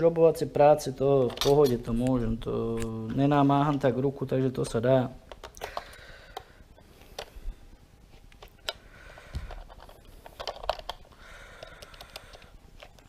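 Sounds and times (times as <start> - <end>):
plastic transmitter clicks and rattles: 5.2 - 7.4, 8.3 - 13.0.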